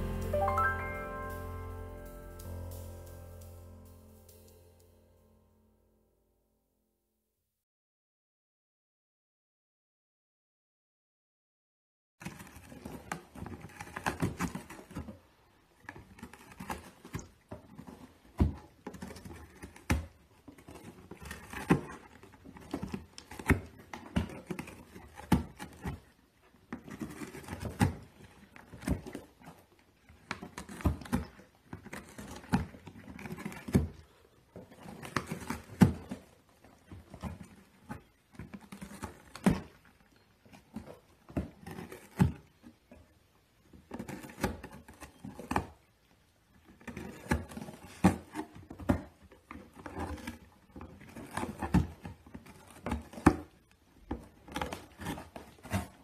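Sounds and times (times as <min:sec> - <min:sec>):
kittens scratching cardboard box: 0:12.2 - 0:42.8, 0:43.7 - 0:45.9, 0:46.5 - 0:56.0.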